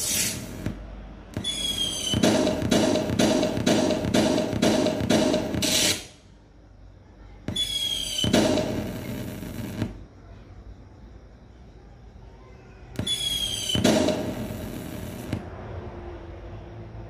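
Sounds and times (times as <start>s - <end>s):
firework burst with whistles: 0.0s - 0.5s, 1.4s - 3.4s, 5.5s - 6.1s, 7.5s - 9.8s, 13.0s - 15.4s
firework hiss: 0.0s - 0.7s, 5.5s - 6.2s.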